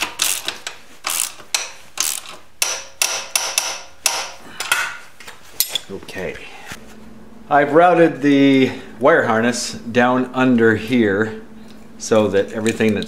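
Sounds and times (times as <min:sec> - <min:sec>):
ratchet wrench clicking: 0:00.0 - 0:04.2.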